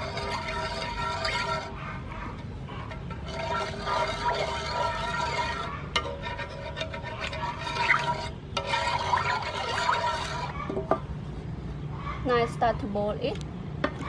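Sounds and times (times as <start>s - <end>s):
liquid swishing in a pan: 0.0s - 11.0s.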